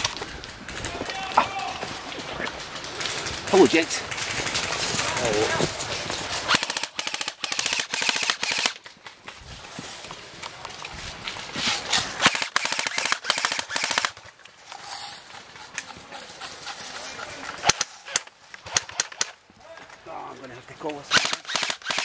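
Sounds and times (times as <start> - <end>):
airsoft rifles firing bursts: 6.3 - 8.9, 11.8 - 14.2, 17.6 - 19.4, 21.1 - 22.0.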